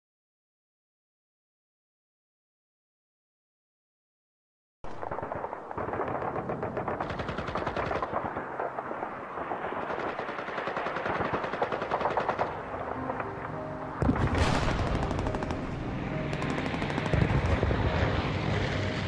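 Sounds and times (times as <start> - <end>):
rapid machine-gun fire: 5.0 - 12.7, 14.0 - 18.2.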